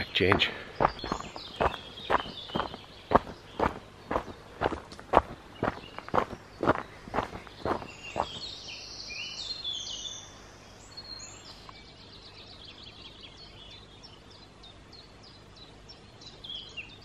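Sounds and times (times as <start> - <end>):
footstep on path: 0.0 - 8.5
songbirds singing: 0.0 - 17.0.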